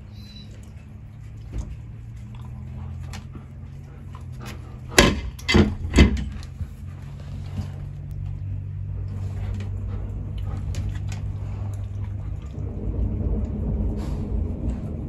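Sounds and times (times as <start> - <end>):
sharp knocks: 4.9 - 6.4
thunderstorm rumble indoors: 8.1 - 15.0.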